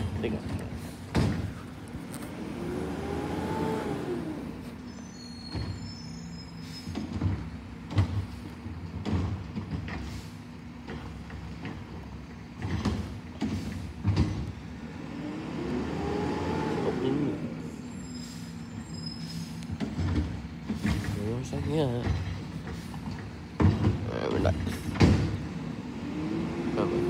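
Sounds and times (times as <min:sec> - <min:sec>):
bins knocking and banging: 0:07.0 - 0:10.0, 0:12.6 - 0:14.5, 0:19.8 - 0:25.4.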